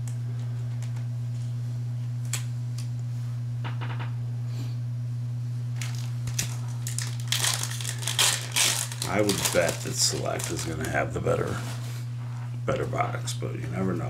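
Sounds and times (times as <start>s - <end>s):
steady low hum: 0.0s - 14.0s
trading cards tapping and rustling: 5.8s - 11.6s.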